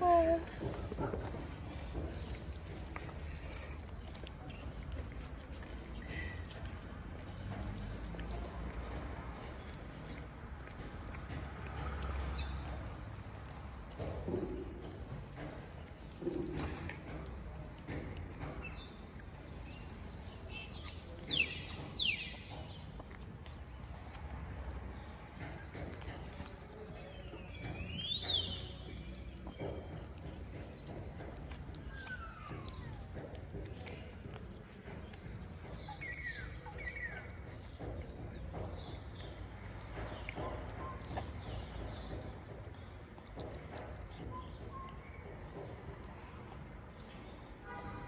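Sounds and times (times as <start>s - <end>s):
cat chewing wet food: 0.2s - 47.9s
bird chirps: 27.0s - 33.0s.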